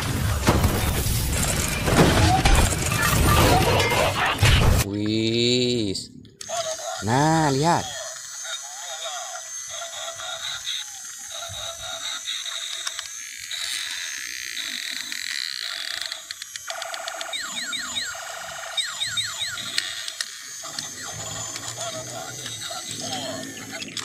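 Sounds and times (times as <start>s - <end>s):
electronic sound effects: 0.0s - 4.9s, 16.8s - 24.0s
toy motor and gears whirring: 0.0s - 4.9s, 6.4s - 24.0s.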